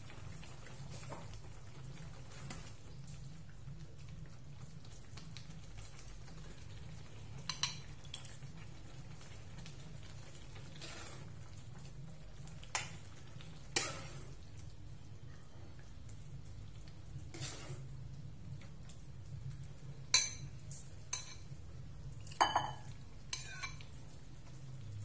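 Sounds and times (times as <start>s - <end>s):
metal ladle clinking on bowl: 22.3s - 23.8s.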